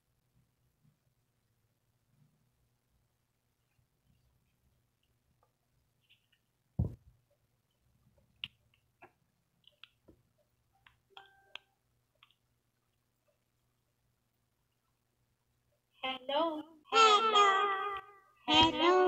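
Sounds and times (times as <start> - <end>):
microphone bump: 6.8 - 7.1.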